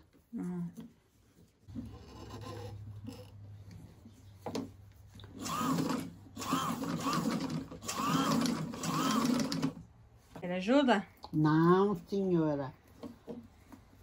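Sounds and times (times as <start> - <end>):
sewing machine stitching: 5.3 - 9.8.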